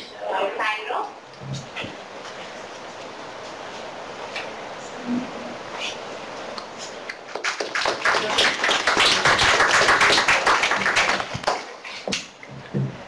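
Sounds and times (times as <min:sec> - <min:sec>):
audience clapping: 0:07.1 - 0:12.2.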